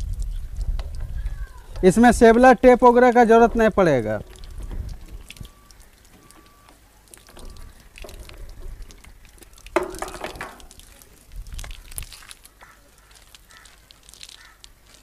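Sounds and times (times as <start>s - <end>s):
handling noise: 1.7s - 12.6s.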